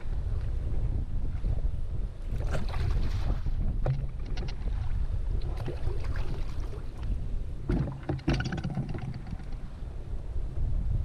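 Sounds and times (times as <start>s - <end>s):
canoe moving through water: 0.0s - 10.8s
wind rumbling on microphone: 0.0s - 11.0s
light splashes and knocks: 7.7s - 9.6s.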